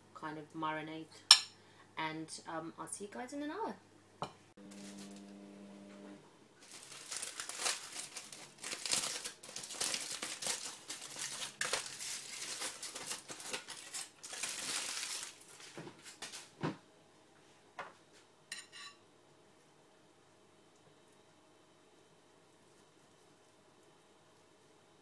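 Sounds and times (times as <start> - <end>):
aluminium foil crinkling: 4.7 - 5.2, 6.6 - 16.5.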